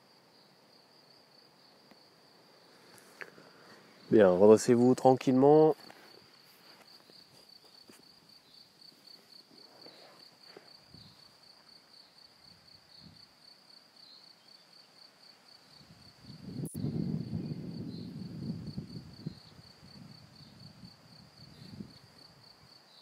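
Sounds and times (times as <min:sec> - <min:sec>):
cricket chirping: 0:00.0 - 0:23.0
soft rustles: 0:05.7 - 0:08.2, 0:08.8 - 0:11.8.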